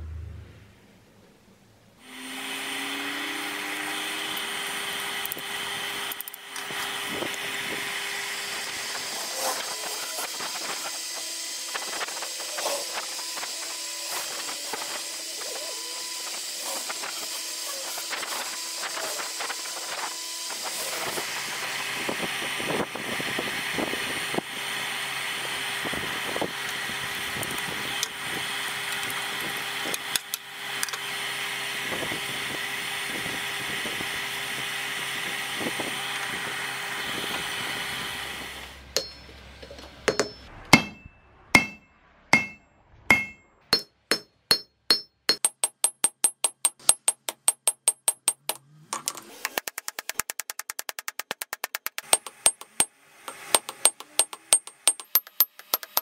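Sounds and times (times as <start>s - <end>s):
forge air blower hissing: 6.7s - 24.4s
hammer striking steel on anvil: 39.0s - 39.4s, 40.1s - 48.7s, 51.9s - 56.0s.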